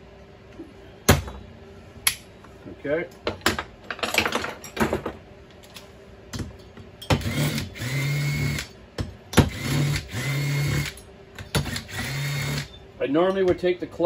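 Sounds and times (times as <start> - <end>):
cordless impact driver: 7.2 - 8.7, 9.4 - 12.7.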